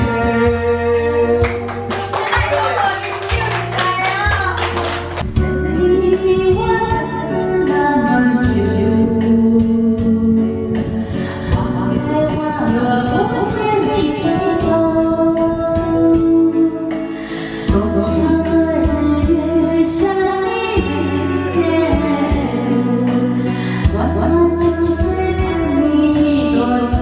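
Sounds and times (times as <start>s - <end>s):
karaoke backing track: 0.0s - 27.0s
hands clapping: 1.4s - 5.3s.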